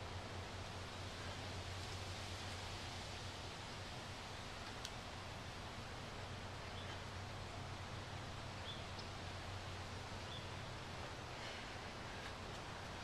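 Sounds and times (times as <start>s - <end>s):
outdoor background hiss: 0.0s - 13.0s
faint bird chirp: 6.6s - 7.1s, 8.6s - 9.2s, 10.2s - 10.8s.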